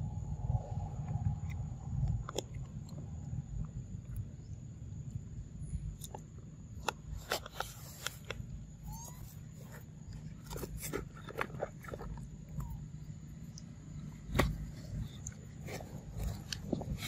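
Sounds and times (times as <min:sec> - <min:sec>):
low hum: 0:00.0 - 0:17.0
high squeaks: 0:08.8 - 0:09.6.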